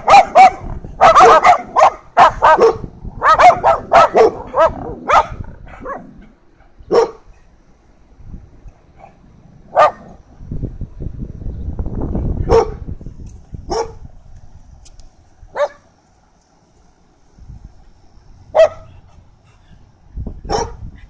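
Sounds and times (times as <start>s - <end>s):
dog barking: 0.0s - 6.1s, 6.9s - 7.2s, 9.0s - 10.1s, 12.5s - 12.8s, 13.7s - 14.0s, 15.5s - 15.8s, 18.6s - 19.0s, 20.4s - 20.8s.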